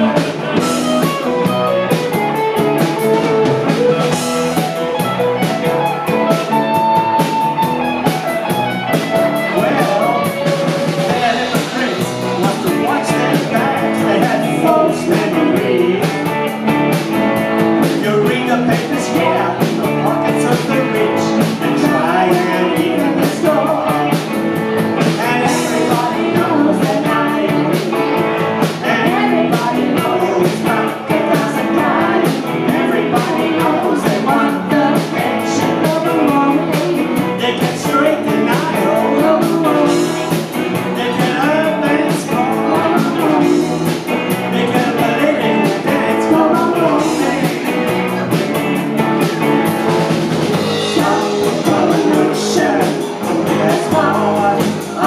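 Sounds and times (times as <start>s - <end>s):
drum kit: 0.0s - 55.0s
electric guitars: 0.0s - 55.0s
woman singing: 25.2s - 44.0s, 50.8s - 55.0s.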